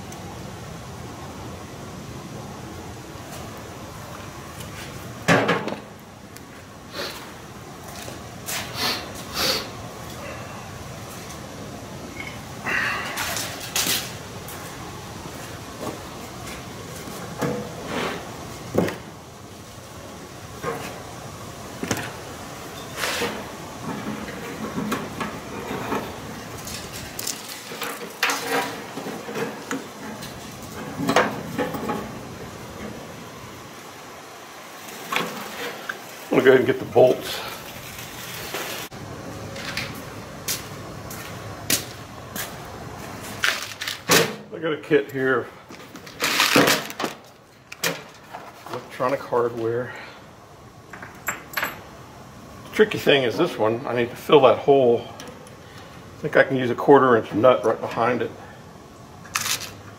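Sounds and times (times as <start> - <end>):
handling sounds: 21.7 - 32.2, 34.5 - 44.4, 45.0 - 49.2, 59.2 - 59.9.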